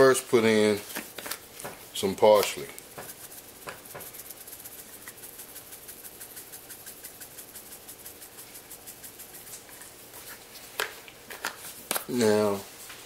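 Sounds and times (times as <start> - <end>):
spice jar rattling: 2.4 - 10.0.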